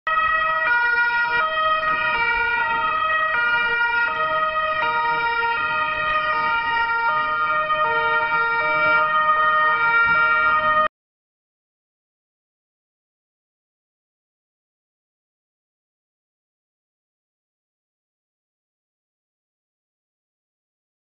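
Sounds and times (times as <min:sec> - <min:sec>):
two-tone police siren: 0:00.1 - 0:10.9.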